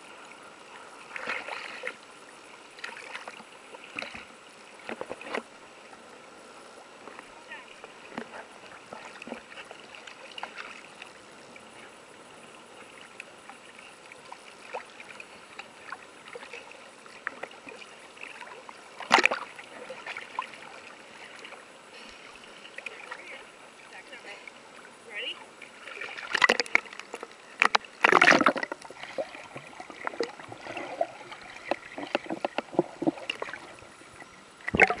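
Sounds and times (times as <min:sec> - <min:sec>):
water lapping and splashing: 0:00.0 - 0:35.0
small splashes and crackles: 0:01.0 - 0:02.0, 0:02.7 - 0:05.5, 0:07.1 - 0:11.2, 0:12.8 - 0:24.6, 0:25.6 - 0:33.9.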